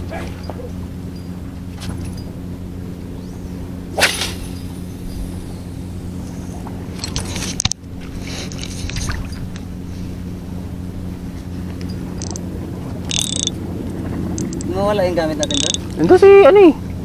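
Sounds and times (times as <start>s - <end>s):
low motor hum: 0.0s - 17.0s.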